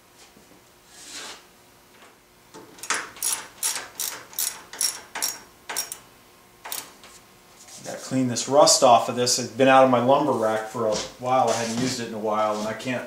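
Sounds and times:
ratchet wrench clicking: 0:02.8 - 0:06.0, 0:06.6 - 0:06.9.

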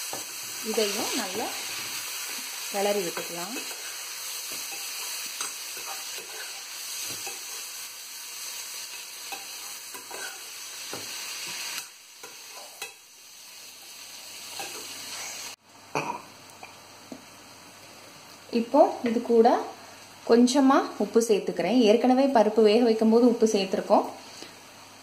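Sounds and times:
lentils sizzling in a pan: 0:00.0 - 0:15.6
metal spoon scraping a pan: 0:00.1 - 0:07.7, 0:08.8 - 0:13.0.

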